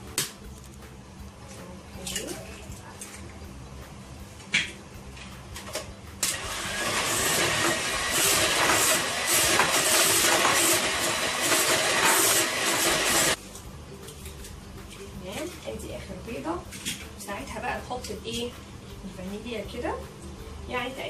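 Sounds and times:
electric mixer whisking: 6.2s - 13.4s.

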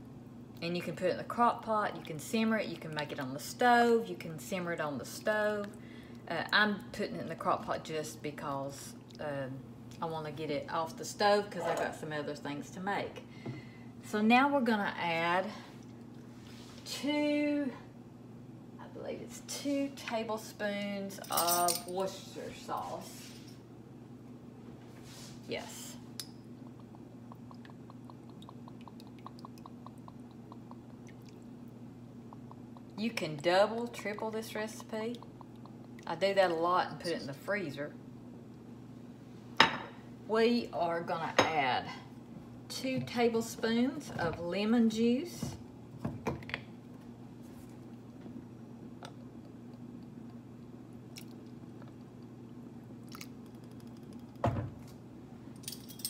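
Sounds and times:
low steady hum: 0.0s - 56.0s
soft liquid blips: 26.2s - 37.0s.

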